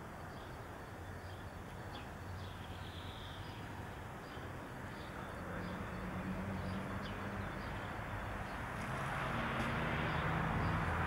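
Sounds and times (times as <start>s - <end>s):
faint bird chirps: 0.3s - 6.0s.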